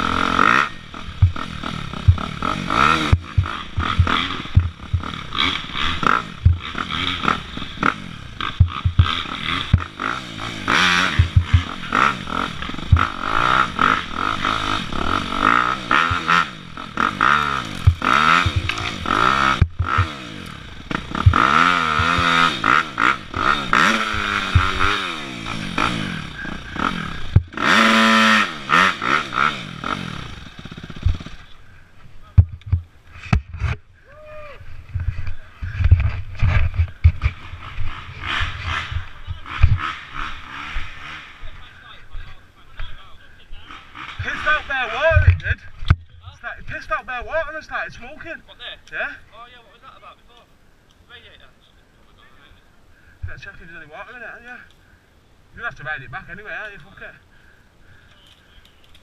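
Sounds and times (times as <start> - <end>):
dirt bike engine revving: 0.0 - 34.0, 34.6 - 46.0
bike clattering over rough ground: 17.2 - 20.2.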